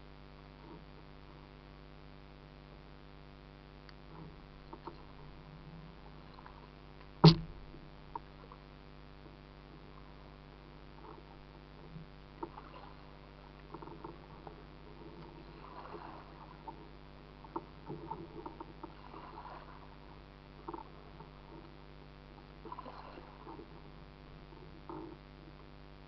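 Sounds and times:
steady low hum: 0:00.0 - 0:26.0
water lapping against kayak hull: 0:04.0 - 0:25.8
short knocks: 0:07.2 - 0:07.7.

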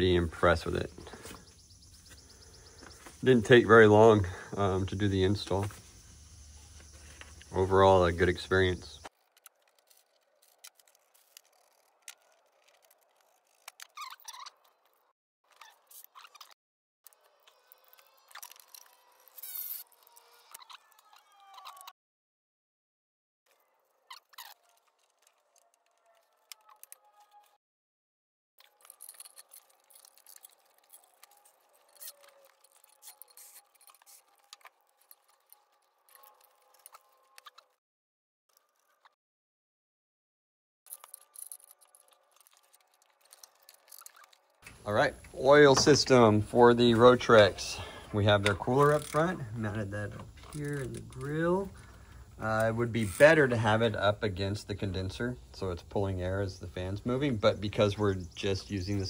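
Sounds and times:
short squeaky scrapes: 0:12.6 - 0:14.9, 0:15.5 - 0:16.6, 0:17.4 - 0:21.9, 0:28.8 - 0:37.8
metal parts clicking and clinking: 0:28.6 - 0:37.6, 0:40.9 - 0:44.5.

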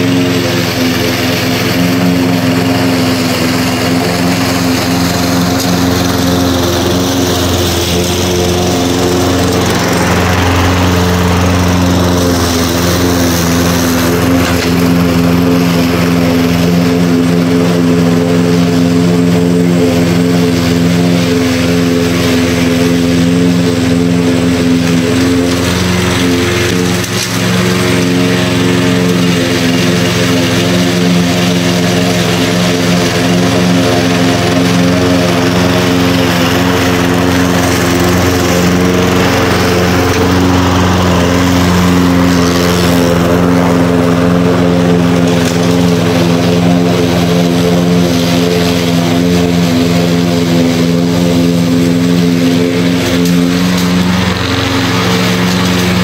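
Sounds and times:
lawn mower engine running: 0:00.0 - 0:56.0.

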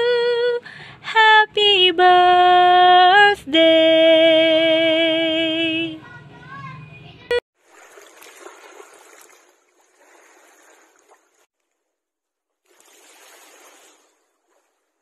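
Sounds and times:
waves washing over pebbles: 0:07.6 - 0:11.5, 0:12.6 - 0:14.7.

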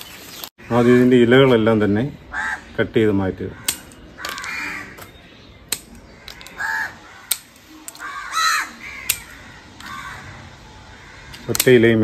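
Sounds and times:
crows cawing: 0:02.3 - 0:05.1, 0:06.0 - 0:11.6
pruning secateurs snipping: 0:07.2 - 0:08.1, 0:09.0 - 0:10.0, 0:11.3 - 0:11.8.

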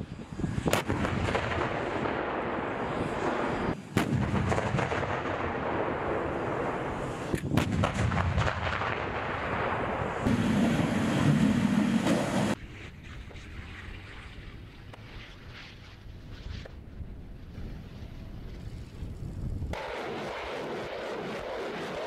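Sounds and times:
tank engines and tracks rumbling: 0:10.3 - 0:12.6.

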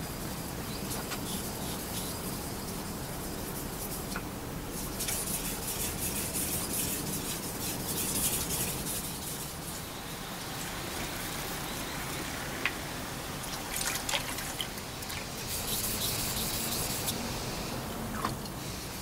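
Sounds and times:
water trickling: 0:10.2 - 0:16.0.

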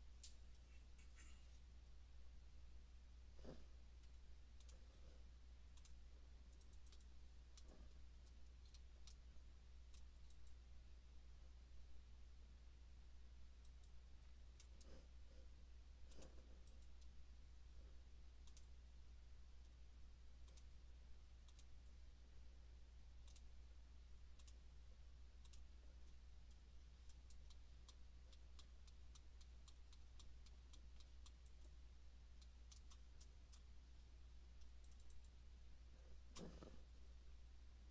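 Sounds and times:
low steady hum: 0:00.0 - 0:37.9
computer mouse clicks: 0:03.4 - 0:10.7, 0:13.6 - 0:15.2, 0:16.0 - 0:17.2, 0:18.4 - 0:18.8, 0:20.4 - 0:20.8, 0:21.4 - 0:22.0, 0:23.2 - 0:23.6, 0:24.3 - 0:24.6, 0:25.4 - 0:33.8, 0:34.5 - 0:35.4, 0:36.1 - 0:37.0.

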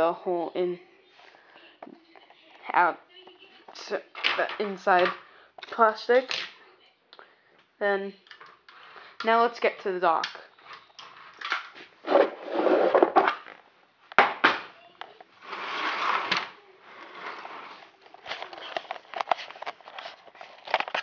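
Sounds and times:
plastic toy bricks rustling: 0:15.4 - 0:21.0.

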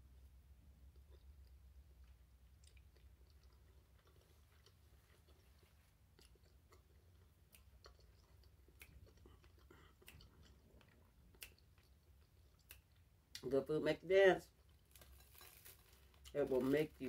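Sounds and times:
low steady hum: 0:00.0 - 0:17.0
chewing with wet mouth clicks: 0:00.9 - 0:13.4.

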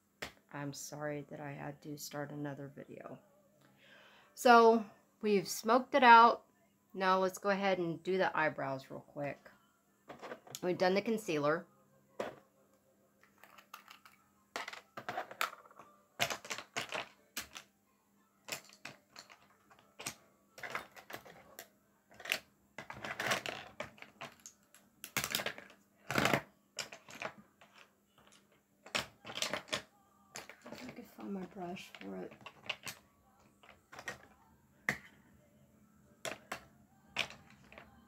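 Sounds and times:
small items clattering together: 0:13.3 - 0:17.6, 0:18.5 - 0:24.5, 0:25.1 - 0:33.0.

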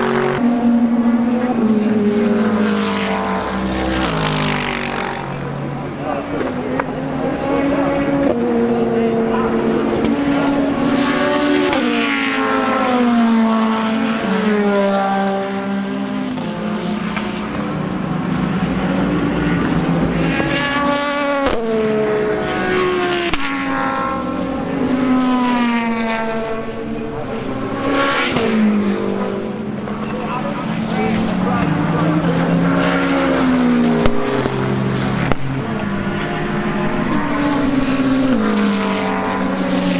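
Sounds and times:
race cars driving past: 0:00.0 - 0:39.9.

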